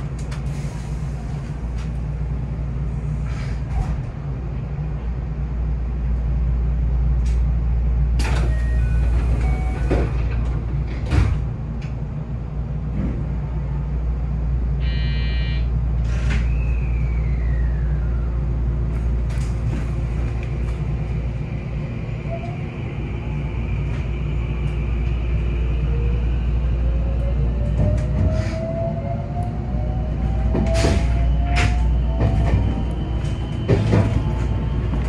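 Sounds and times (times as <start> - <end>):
train running rumble: 0.0 - 35.0
electric train inverter whine: 4.2 - 35.0
electronic tone: 14.8 - 15.7.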